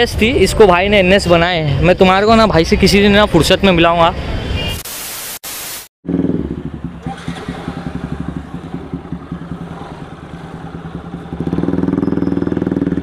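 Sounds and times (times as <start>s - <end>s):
motorcycle engine idling: 6.1s - 13.0s.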